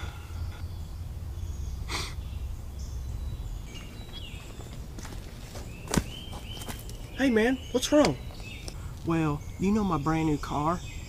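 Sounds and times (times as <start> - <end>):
low outdoor rumble: 0.0 - 11.0
person exhaling sharply: 1.9 - 2.2.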